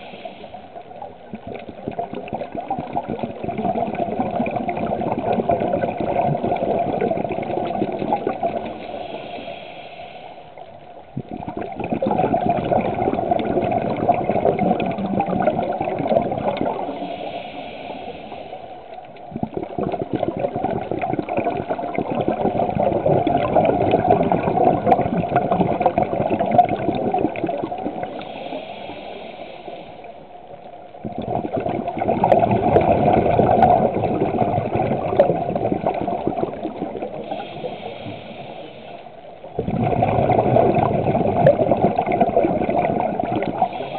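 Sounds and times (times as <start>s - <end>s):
hissing regulator inhalations: 0.0s - 0.8s, 8.2s - 11.0s, 16.6s - 19.3s, 28.0s - 30.6s, 37.1s - 39.4s, 43.4s - 43.9s
bubbling exhalations underwater: 1.2s - 8.8s, 11.1s - 17.1s, 19.3s - 28.2s, 31.0s - 37.6s, 39.4s - 43.9s.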